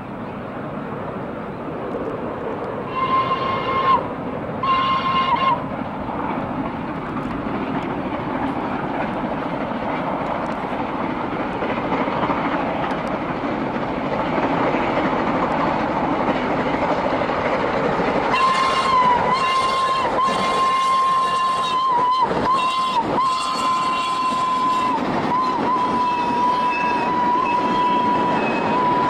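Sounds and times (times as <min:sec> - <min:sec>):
steam locomotive exhaust and running: 0:00.0 - 0:29.0
steam locomotive whistle: 0:02.9 - 0:05.7, 0:18.2 - 0:29.0.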